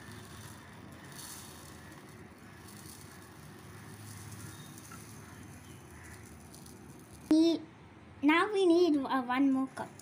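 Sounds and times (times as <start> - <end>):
rice grains pouring into bowl: 0.0 - 7.3.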